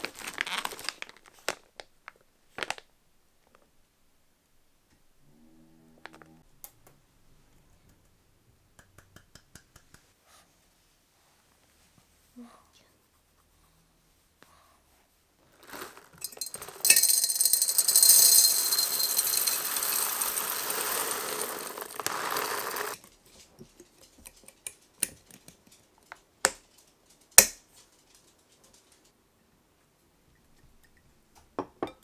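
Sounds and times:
bag crinkle: 0.0s - 2.9s, 15.5s - 23.0s
coffee beans rattling into glass jar: 15.6s - 23.1s.

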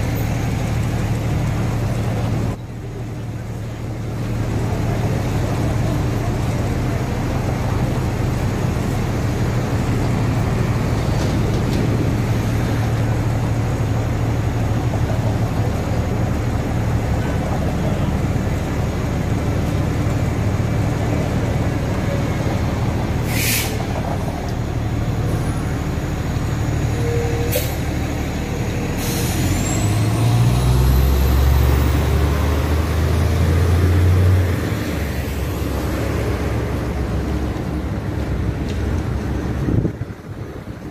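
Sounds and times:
fire engine diesel engine: 0.0s - 40.9s
street traffic rumbling: 0.0s - 40.9s
air brakes hissing: 23.2s - 24.0s, 27.3s - 27.9s, 28.8s - 30.0s.

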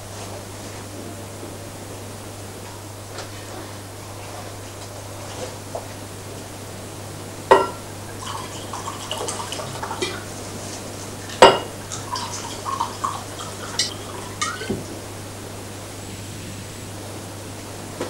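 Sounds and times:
tableware clatter: 7.5s - 10.2s, 11.2s - 14.9s
glasses clinking: 7.5s - 10.3s, 11.3s - 14.9s
wine gurgling into glasses: 7.5s - 15.2s.

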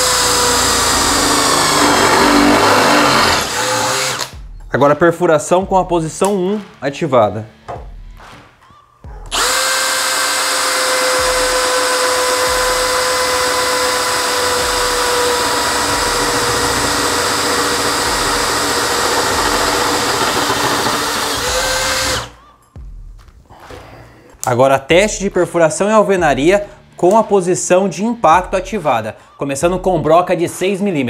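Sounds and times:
cordless drill whining: 0.0s - 4.3s, 9.3s - 22.4s.

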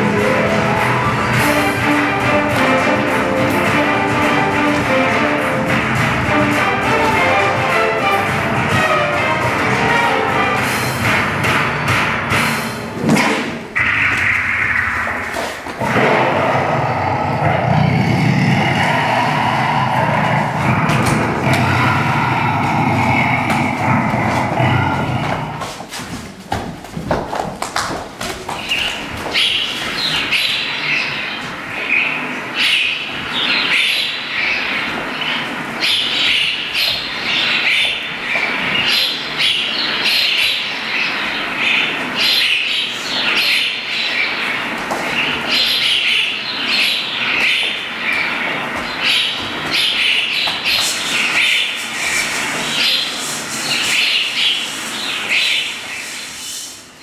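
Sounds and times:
bird calls and chirps: 28.6s - 57.0s.

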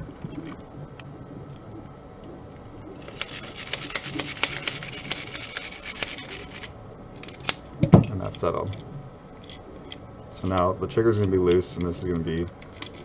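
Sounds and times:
plastic parts clicking and rattling: 3.0s - 8.8s, 10.4s - 13.0s.

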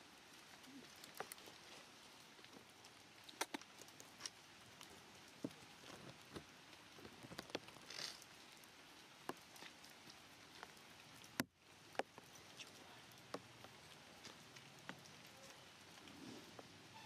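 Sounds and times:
faint hiss: 7.8s - 17.0s.

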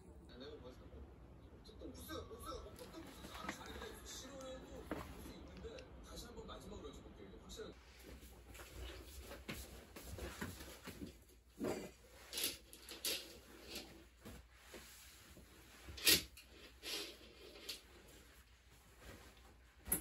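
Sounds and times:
bedding rustling: 2.7s - 5.5s, 7.8s - 20.0s.

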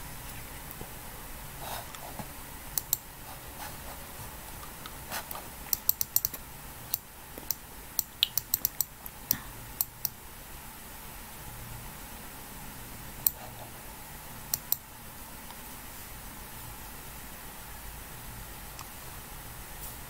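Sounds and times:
low steady hum: 0.0s - 20.0s
computer mouse clicks: 2.8s - 3.1s, 5.7s - 10.2s, 13.2s - 13.5s, 14.5s - 14.8s.

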